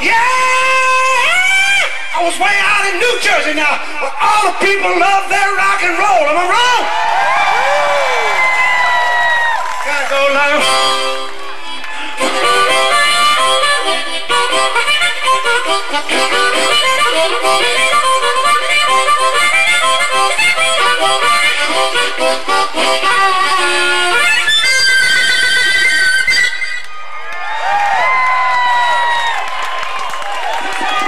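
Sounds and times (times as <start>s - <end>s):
blues harmonica: 0.0s - 5.3s, 10.2s - 26.9s.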